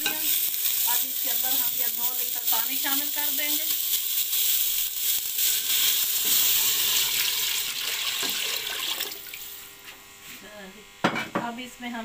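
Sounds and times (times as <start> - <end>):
chicken sizzling in oil: 0.0 - 9.7
water pouring into pot: 3.8 - 9.6.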